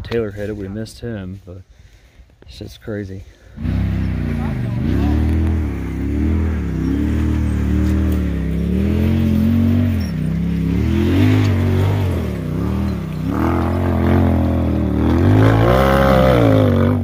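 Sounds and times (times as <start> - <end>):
buggy engine revving: 3.4 - 17.0.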